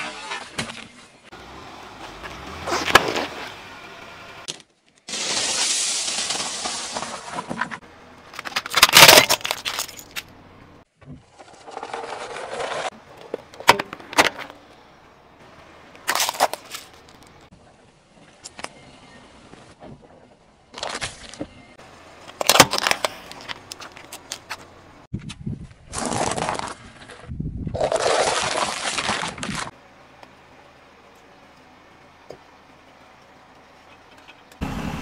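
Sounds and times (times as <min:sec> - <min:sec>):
objects crunching under car tyre: 0:01.9 - 0:03.6, 0:04.4 - 0:15.0, 0:15.9 - 0:17.5, 0:19.5 - 0:29.8
hiss: 0:05.1 - 0:07.0.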